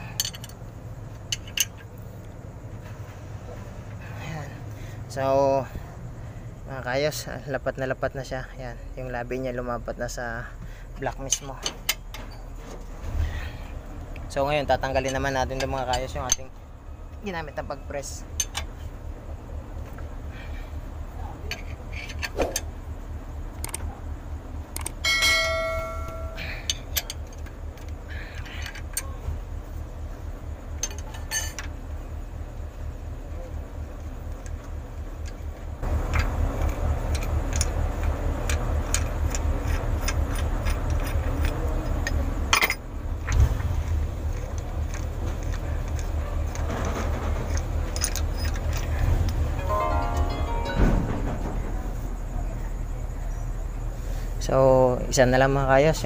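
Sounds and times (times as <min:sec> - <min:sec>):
metal tools clinking: 0:00.0 - 0:00.6, 0:01.3 - 0:02.0, 0:25.1 - 0:29.2, 0:30.8 - 0:31.7, 0:39.7 - 0:42.8
low machine hum: 0:00.0 - 0:56.0
ringing metal clang: 0:25.0 - 0:26.8, 0:49.6 - 0:52.4.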